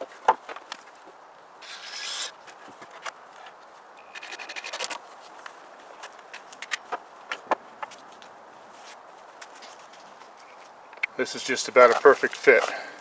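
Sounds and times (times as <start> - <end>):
drill driving screws into wood: 1.6 - 2.3.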